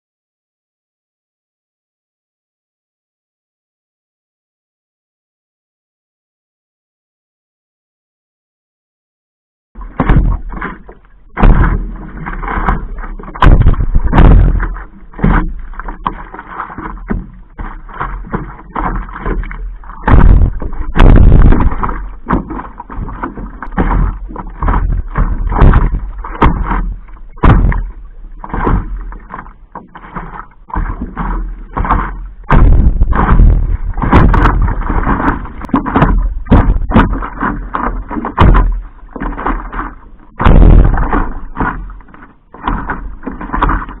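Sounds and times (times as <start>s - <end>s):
steady low rumble: 9.8s - 29.8s, 30.5s - 43.2s
water splashing and sloshing: 9.8s - 44.0s.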